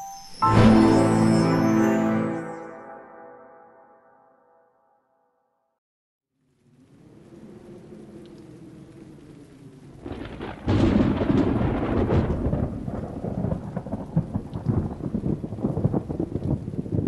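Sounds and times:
heavy rain: 0:00.4 - 0:02.4, 0:06.4 - 0:17.0
thunder cracking and rolling: 0:07.0 - 0:17.0.

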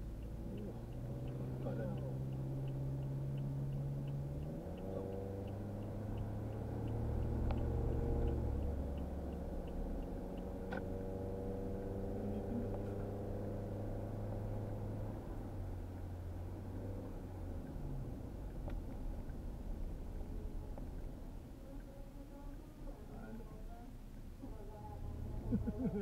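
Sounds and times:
light ticking: 0:00.0 - 0:16.4
car engine and road noise: 0:00.0 - 0:26.0.

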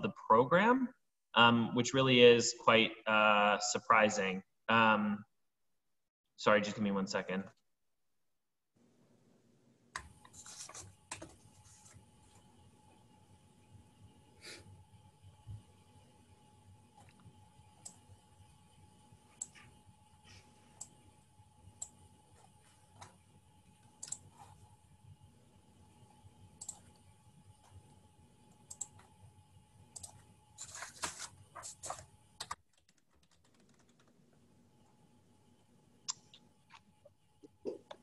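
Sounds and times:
mouse clicking: 0:24.0 - 0:24.3, 0:26.6 - 0:27.0, 0:30.0 - 0:30.2.

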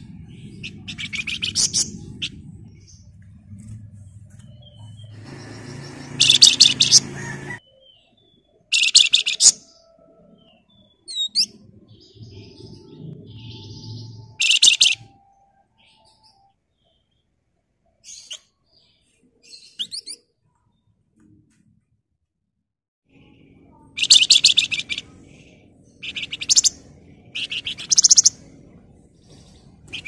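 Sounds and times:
thin sweeping bird chirps: 0:00.0 - 0:20.9, 0:23.7 - 0:28.5, 0:29.2 - 0:30.0
songbird rattling trills: 0:04.6 - 0:07.6, 0:13.4 - 0:15.0.

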